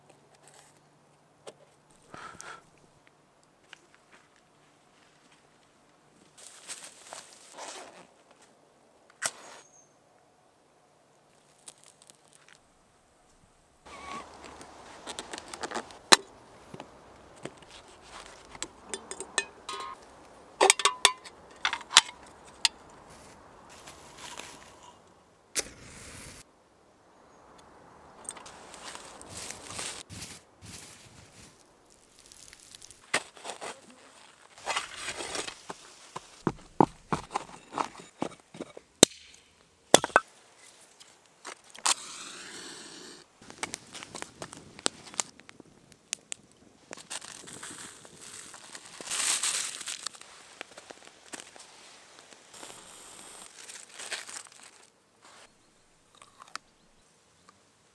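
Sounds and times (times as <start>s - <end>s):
rustling: 6.2s - 8.6s, 13.3s - 26.4s, 28.3s - 38.9s, 46.8s - 55.6s
kindling crackling: 13.8s - 26.5s, 27.5s - 36.5s, 40.9s - 55.5s
hand scraping dry soil: 13.9s - 19.2s, 22.4s - 25.0s, 28.4s - 38.8s
steady hiss: 21.9s - 33.0s, 46.6s - 55.6s
firewood knocking: 36.4s - 39.3s.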